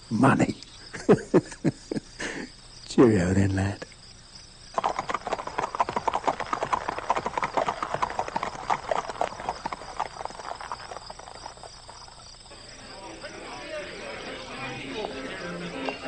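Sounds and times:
horse hooves on cobblestones: 4.8s - 12.4s.

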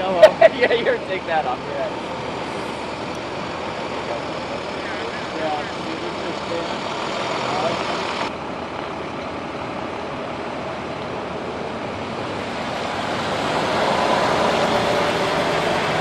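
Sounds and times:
emergency vehicles idling: 0.0s - 16.0s.

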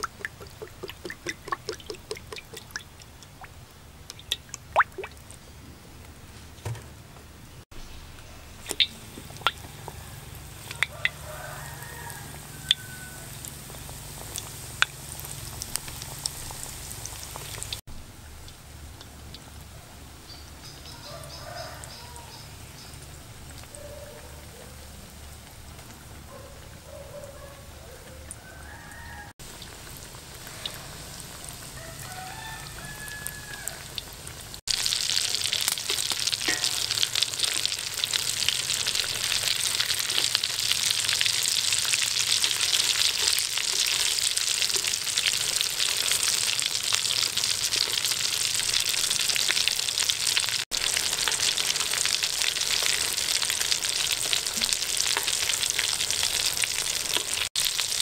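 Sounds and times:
food sizzling in hot oil: 0.0s - 3.5s, 7.7s - 17.9s, 28.4s - 58.0s.

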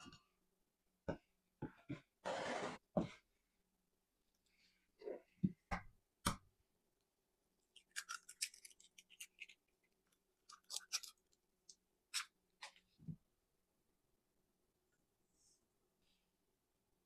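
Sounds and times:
eggs cracking: 7.6s - 12.4s.

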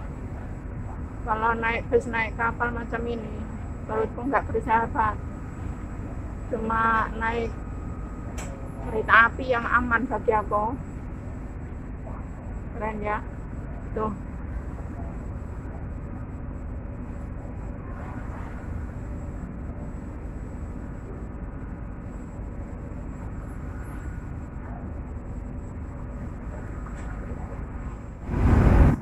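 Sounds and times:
ferry engine droning: 0.0s - 29.0s
wind and water rushing: 28.2s - 29.0s.

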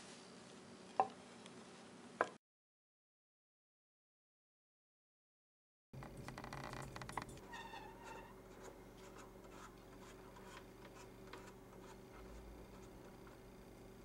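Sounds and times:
light clicks and scratches: 6.0s - 13.4s
steady low hum: 6.0s - 14.0s
faint squeak: 6.4s - 8.7s.

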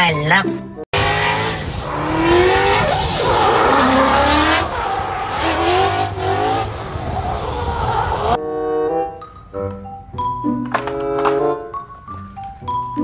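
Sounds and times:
car engine revving: 0.9s - 8.4s
chiming mallet jingle: 8.6s - 13.0s.

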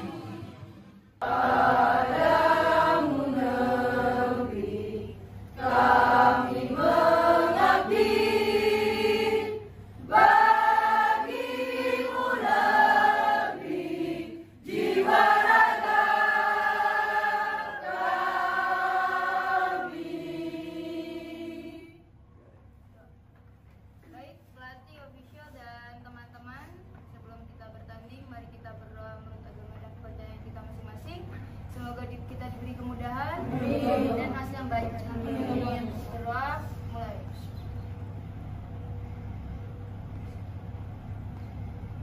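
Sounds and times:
women singing in unison: 0.0s - 22.0s.

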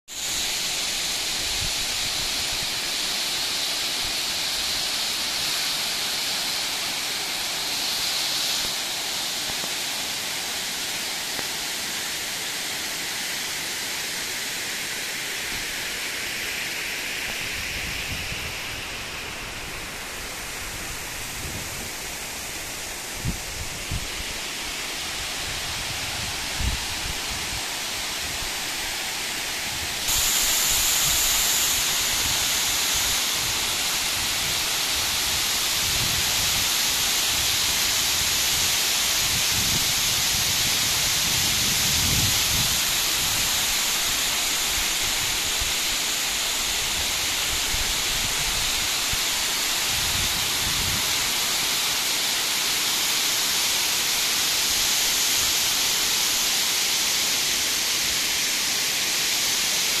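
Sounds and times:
water rushing over spillway: 0.1s - 60.0s.

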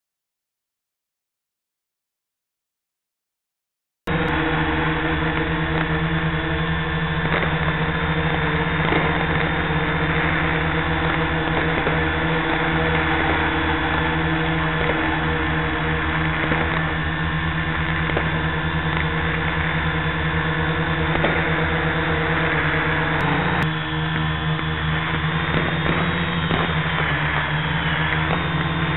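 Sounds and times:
drone humming and hissing: 4.1s - 28.9s
steady tones: 4.1s - 28.9s.

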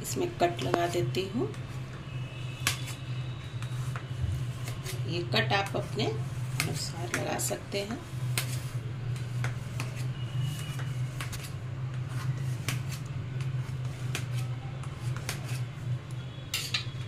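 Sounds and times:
knife clicking and scraping on metal: 16.5s - 17.0s.

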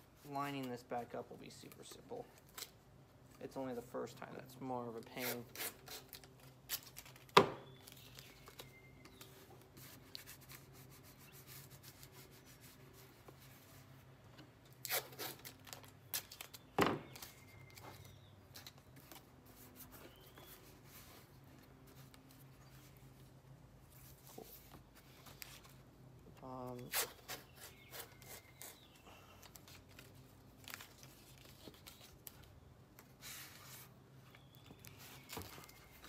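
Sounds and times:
tape tearing: 2.4s - 2.8s, 5.0s - 12.5s, 14.6s - 20.6s, 26.6s - 33.9s
tape crackling: 5.4s - 11.1s, 14.4s - 36.0s.

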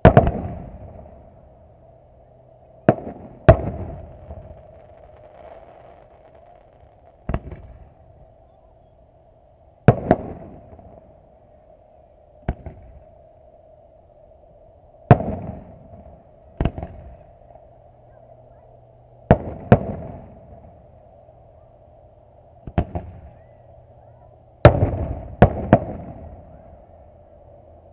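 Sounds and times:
firework booms with echo: 0.0s - 1.1s, 2.8s - 7.9s, 9.8s - 11.0s, 12.4s - 13.0s, 15.1s - 17.2s, 19.3s - 20.6s, 22.6s - 23.3s, 24.6s - 26.6s
steady hum: 0.0s - 27.9s.

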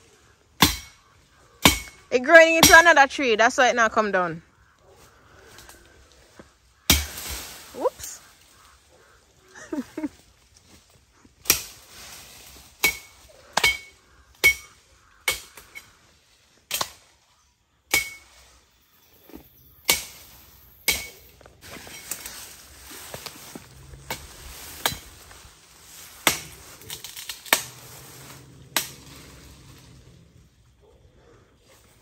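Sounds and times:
blade chopping into tree: 6.9s - 7.4s, 26.1s - 27.9s.

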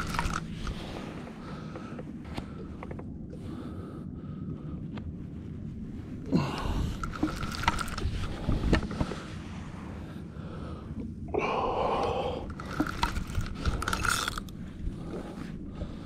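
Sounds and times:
knocks and rustling of fishing gear: 0.0s - 3.3s, 6.6s - 9.4s, 12.4s - 15.5s
wind rumble on microphone: 0.0s - 16.0s.

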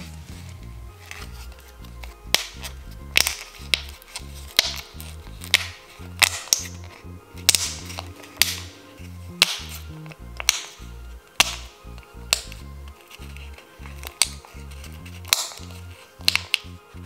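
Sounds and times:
background music with bass: 0.0s - 17.0s
plastic bubbles popping: 2.3s - 8.8s, 9.4s - 10.8s, 15.2s - 16.8s.

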